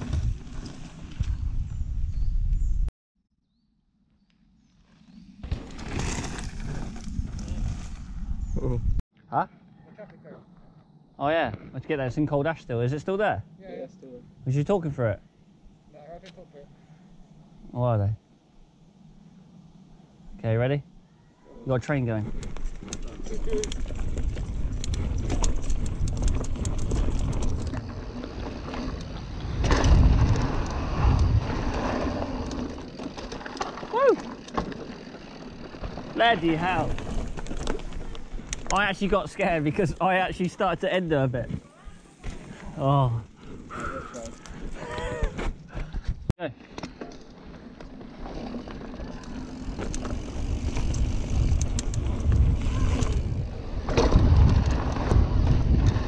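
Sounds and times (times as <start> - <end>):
bike tyre rumble: 0.0 - 2.9, 4.6 - 9.0, 21.9 - 46.3, 46.9 - 56.0
wind buffeting microphone: 22.2 - 33.1, 49.6 - 56.0
bike rattling clicks over bumps: 22.3 - 40.6, 46.0 - 56.0.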